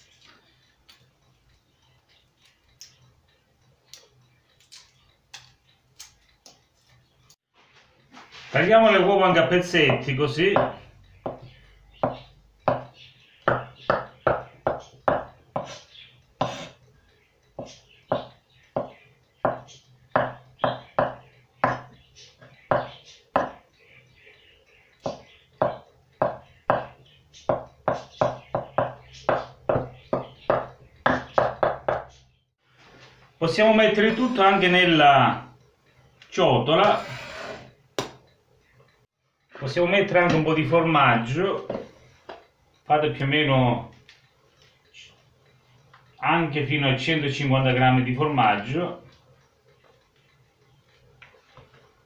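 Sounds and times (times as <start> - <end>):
knife chopping on wooden board: 10.6 - 12.9, 13.5 - 15.8, 16.4 - 16.7, 17.6 - 21.9, 22.7 - 23.6, 25.0 - 32.1.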